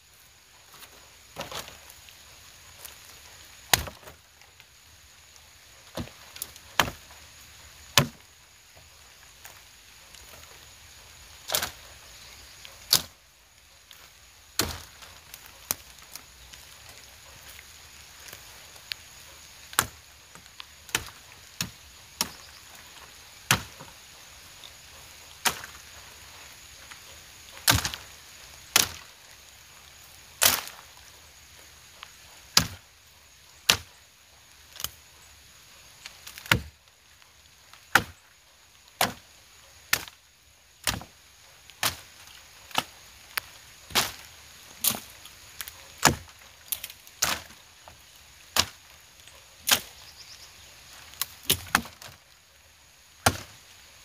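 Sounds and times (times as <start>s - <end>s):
blade chopping wood: 3.7s - 4.1s, 5.9s - 7.0s, 8.0s - 8.2s, 14.6s - 15.1s, 20.9s - 22.4s, 23.4s - 23.9s, 27.6s - 28.0s, 32.5s - 32.8s, 33.7s - 33.9s, 36.3s - 36.7s, 37.9s - 38.2s, 39.0s - 39.2s, 39.9s - 40.2s, 40.8s - 41.1s, 41.8s - 42.1s, 43.9s - 45.1s, 46.0s - 47.6s, 48.5s - 48.9s, 49.7s - 49.9s, 51.2s - 52.2s, 53.2s - 53.6s.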